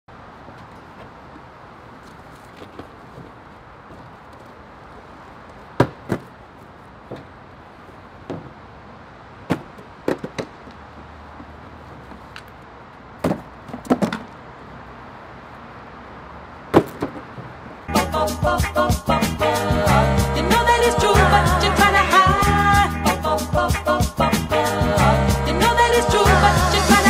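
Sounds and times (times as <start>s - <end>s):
cardboard boxes thumping: 5.8s - 6.3s, 9.5s - 10.6s, 13.2s - 14.3s.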